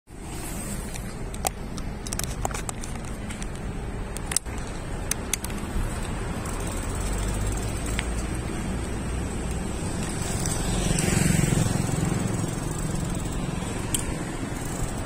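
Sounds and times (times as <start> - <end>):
car driving past: 9.0 - 12.6.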